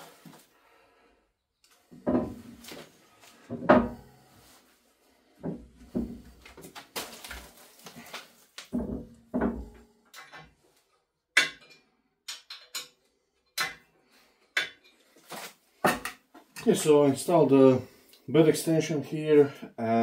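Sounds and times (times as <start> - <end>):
metal knocks clinks and scrapes: 11.4 - 13.8.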